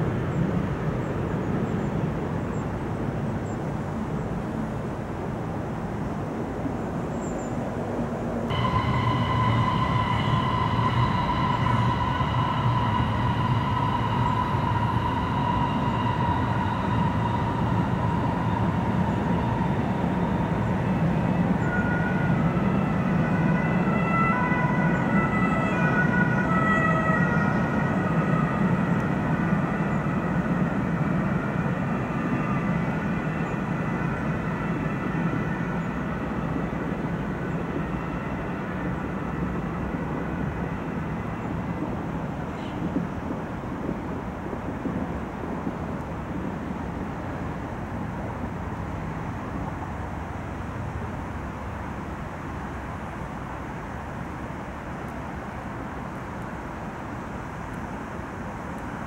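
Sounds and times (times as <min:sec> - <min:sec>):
electric locomotive rumbling: 0:00.0 - 0:59.0
locomotive high whine: 0:08.3 - 0:59.0
higher tones: 0:08.5 - 0:42.5.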